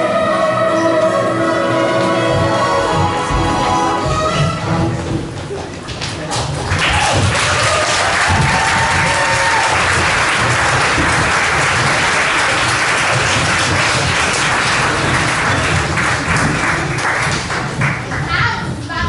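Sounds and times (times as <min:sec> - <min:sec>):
audience applauding: 0:05.8 - 0:18.3.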